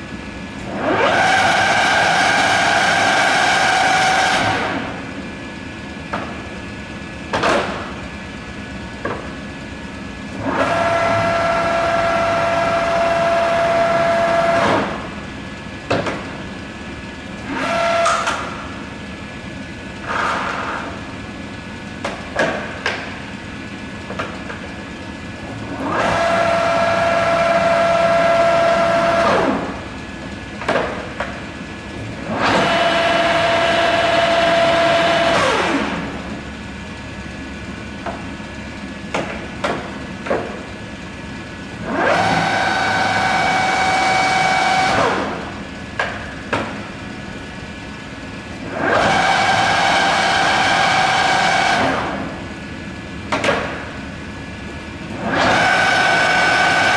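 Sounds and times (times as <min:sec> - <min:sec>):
lathe spindle whining: 0:10.4 - 0:15.0, 0:25.5 - 0:29.8, 0:41.8 - 0:45.6, 0:48.6 - 0:52.4, 0:55.1 - 0:56.9.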